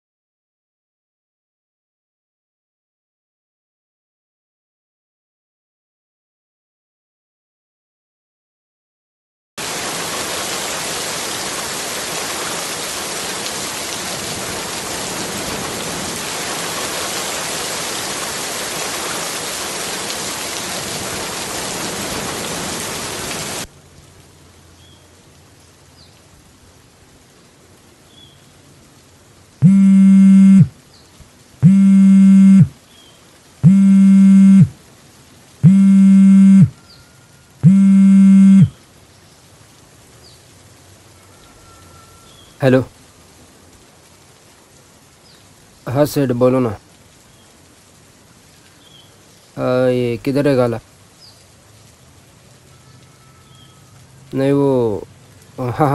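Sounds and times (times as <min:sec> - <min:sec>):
mobile phone ringing: 0:29.6 - 0:30.7, 0:31.6 - 0:32.7, 0:33.6 - 0:34.7, 0:35.7 - 0:36.7, 0:37.6 - 0:38.7.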